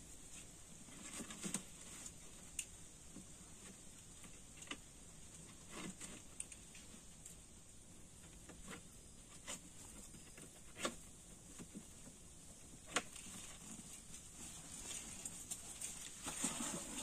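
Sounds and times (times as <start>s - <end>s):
steady high hiss: 0.0s - 17.0s.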